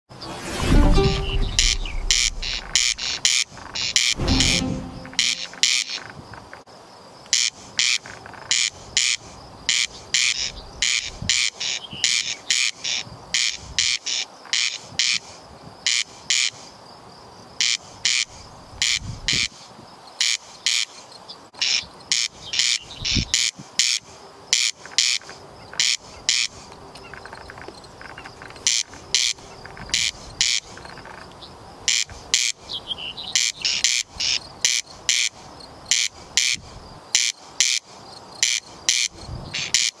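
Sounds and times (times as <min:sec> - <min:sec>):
corn crake rasping call: 0:21.6 - 0:31.3.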